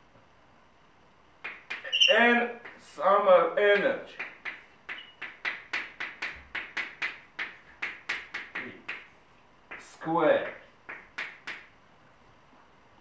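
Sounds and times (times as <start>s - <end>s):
chalk tapping and scratching on blackboard: 1.4s - 2.9s, 3.8s - 11.7s.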